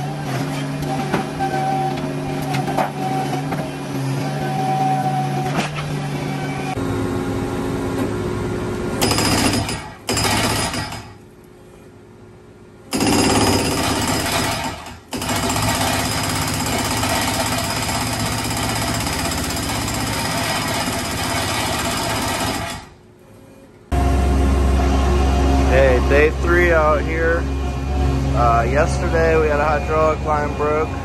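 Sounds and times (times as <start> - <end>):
hydraulic breaker hammering concrete: 9.0 - 11.2, 12.9 - 23.0.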